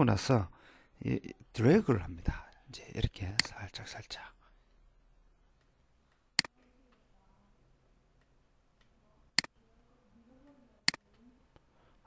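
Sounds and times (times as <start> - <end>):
computer mouse clicks: 5.6 - 7.0, 10.8 - 11.7.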